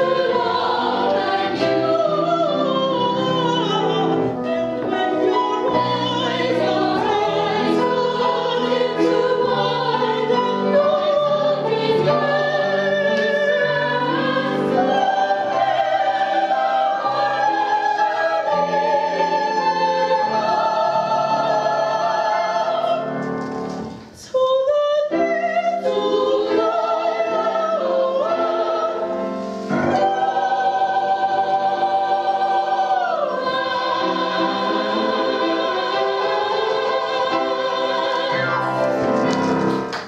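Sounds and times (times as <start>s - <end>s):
chorus singing: 0.0s - 23.4s, 25.1s - 40.0s
piano: 0.0s - 40.0s
woman singing operatically: 24.2s - 26.6s.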